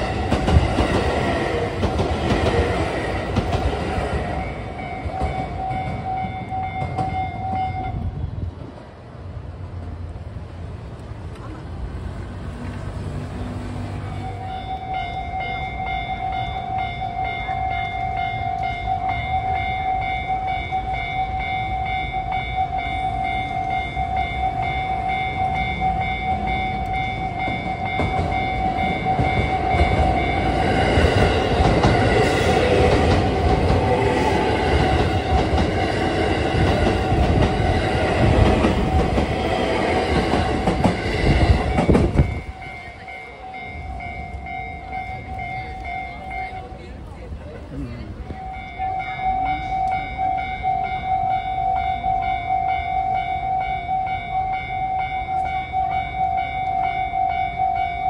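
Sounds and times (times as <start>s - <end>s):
train passing: 0.0s - 58.0s
level crossing bell ringing: 14.2s - 32.9s, 40.6s - 46.9s, 48.4s - 58.0s.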